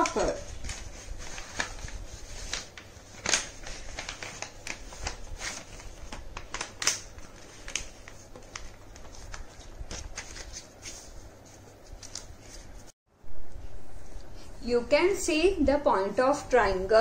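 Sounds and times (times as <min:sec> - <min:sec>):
paper rustling and crackling: 0:00.0 - 0:12.9.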